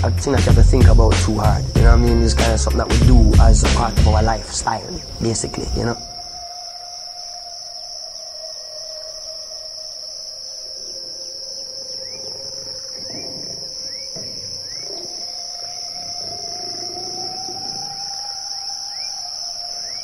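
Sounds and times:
insect chorus: 0.0s - 20.0s.

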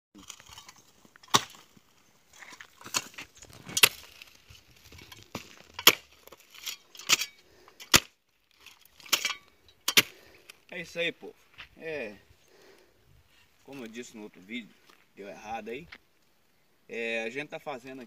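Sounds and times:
post-hole digger striking soil: 0.2s - 1.8s, 2.4s - 10.4s
dirt scraping: 0.2s - 16.3s.

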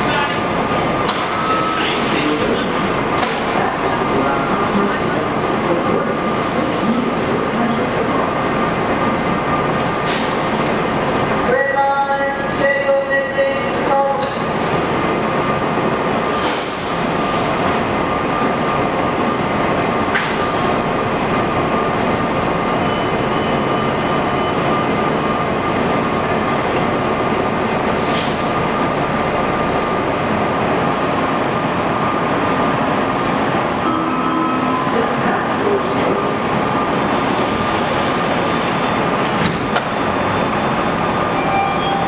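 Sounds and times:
train equipment hum and whine: 0.0s - 42.0s
brief air hiss: 16.3s - 17.1s.

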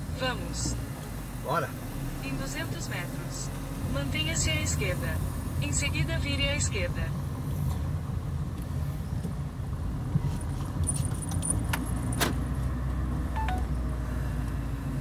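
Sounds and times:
car engine and road rumble: 0.0s - 15.0s
light metallic jingling: 10.3s - 12.2s.

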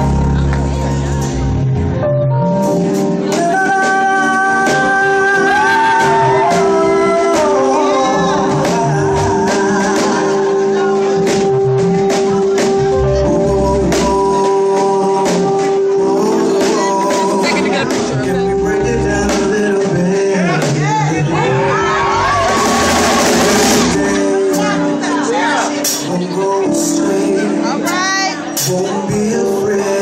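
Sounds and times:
drum kit and cymbal hits: 0.0s - 21.1s, 22.1s - 26.8s, 28.5s - 29.4s
held keyboard chords: 0.0s - 30.0s
woman singing into a microphone: 16.3s - 17.8s.

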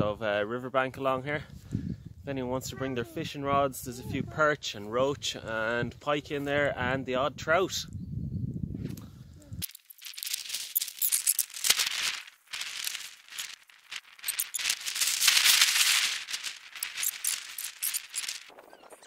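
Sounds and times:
fast rattling footsteps and handling: 9.6s - 18.6s.

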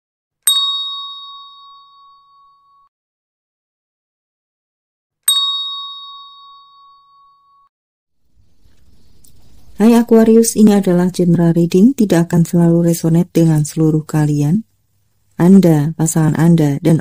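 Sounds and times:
metallic chime struck: 5.3s - 7.6s.

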